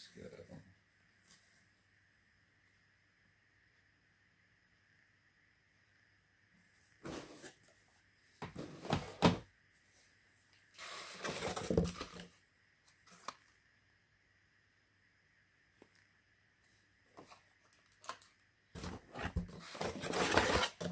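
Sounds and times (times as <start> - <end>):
model car packaging rustling: 10.7 - 13.5, 17.2 - 20.9.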